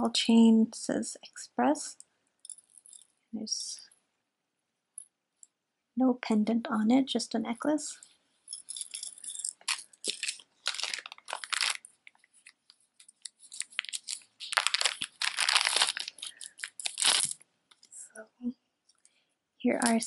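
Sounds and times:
plastic bag crinkling: 8.7s - 17.4s.

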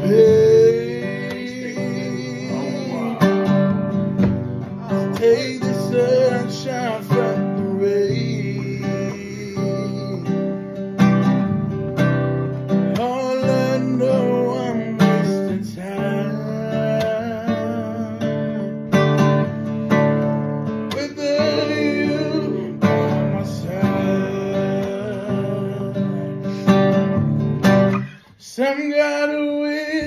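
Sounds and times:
man singing: 0.0s - 11.1s, 12.6s - 27.2s, 27.9s - 30.0s
nylon-string guitar strumming: 0.0s - 30.0s.

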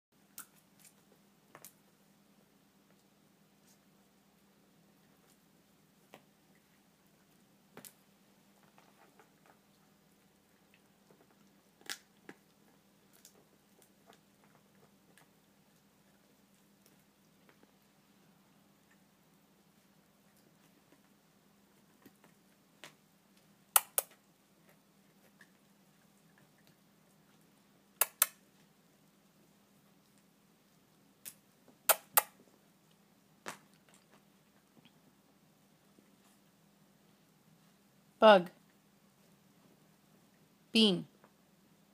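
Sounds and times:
lip kissing smacks: 28.0s - 28.4s, 31.2s - 32.4s.

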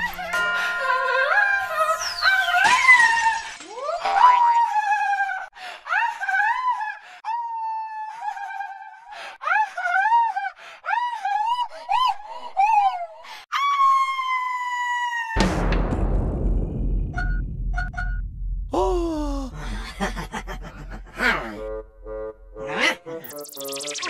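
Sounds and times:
heavy crash: 15.4s - 21.3s
low rumble: 15.4s - 22.7s
high swooping pitched sounds: 20.3s - 24.0s.

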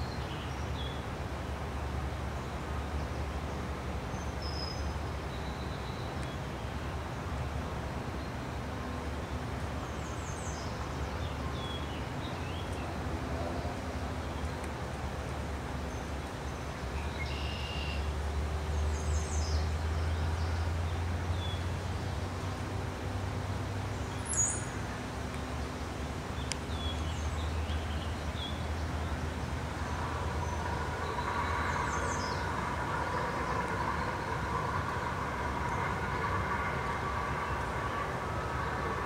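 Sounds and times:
distant vehicle rumble: 17.9s - 39.0s
higher wavering hum: 29.1s - 39.0s.

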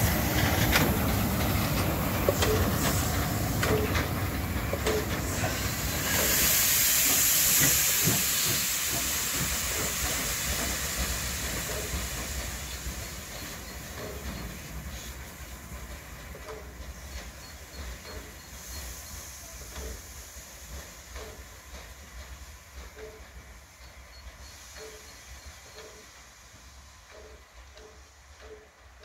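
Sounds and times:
wheels clicking over rail joints: 0.0s - 6.4s, 7.6s - 18.6s
locomotive rumble: 0.0s - 26.2s
steam locomotive hissing: 0.0s - 29.0s.

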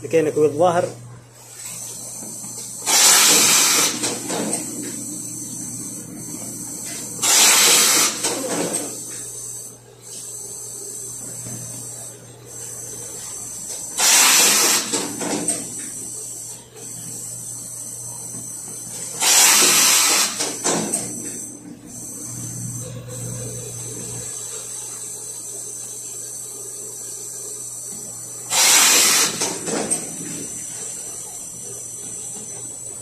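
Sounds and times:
machine humming: 0.0s - 33.0s
steam press hissing: 1.6s - 12.0s, 12.6s - 17.2s, 18.9s - 22.4s, 28.4s - 32.7s.

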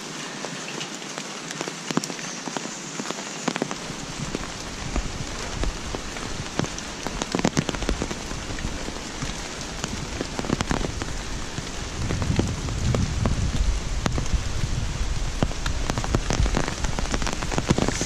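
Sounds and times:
rain on leaves and pavement: 0.0s - 18.0s
low rumble: 11.8s - 18.0s.

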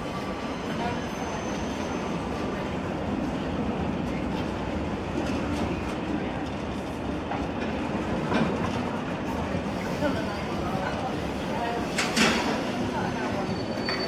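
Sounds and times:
train wheels clacking on rails: 11.8s - 14.0s.

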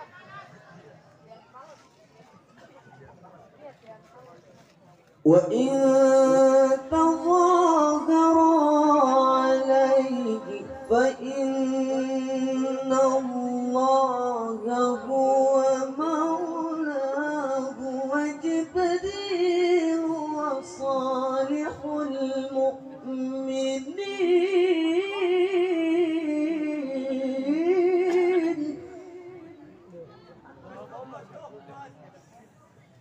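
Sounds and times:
man reciting melodically into microphone: 5.2s - 29.7s.

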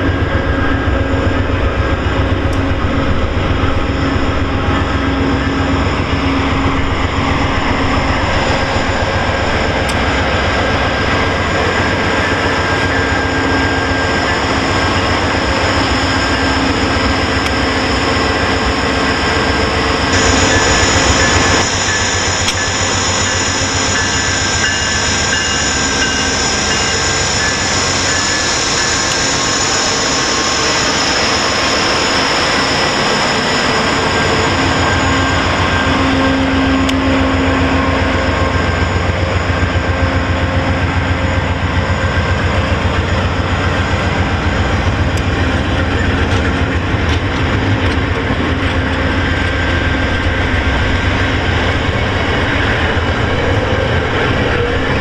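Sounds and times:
low rhythmic pulsing: 0.0s - 15.2s
diesel locomotive passing: 0.0s - 55.0s
passenger coaches rolling by: 0.0s - 55.0s.

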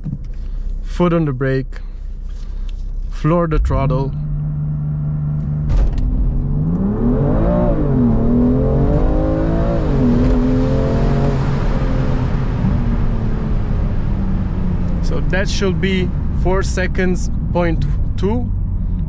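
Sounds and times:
car engine revving hard: 3.6s - 15.7s.

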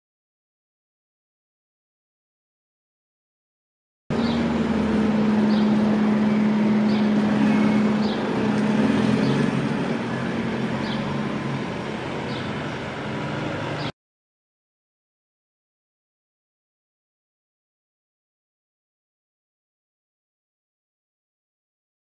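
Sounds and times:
low hum: 4.1s - 13.9s.

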